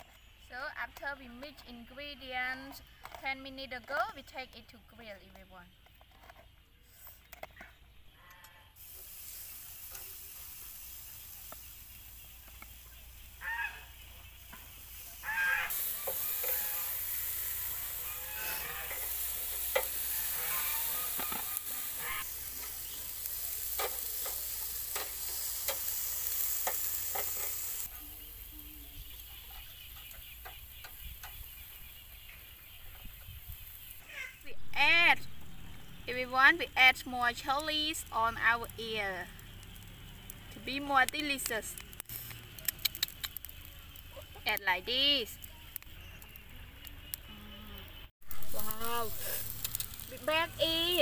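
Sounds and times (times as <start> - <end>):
eels sizzling on a grill: 8.6 - 51.0
metal tongs clicking on grate: 18.9 - 20.0.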